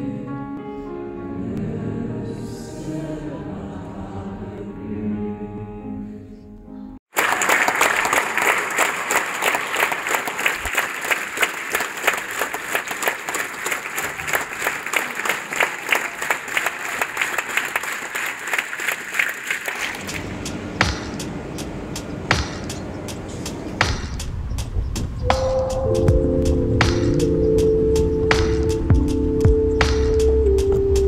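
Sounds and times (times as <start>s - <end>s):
audience applause: 7.1s - 20.3s
soft piano music: 25.2s - 31.0s.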